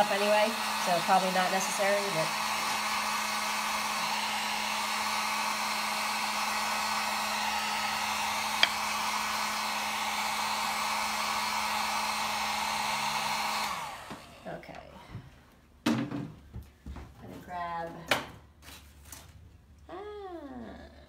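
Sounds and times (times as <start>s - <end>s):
heat gun blowing: 0.0s - 14.6s.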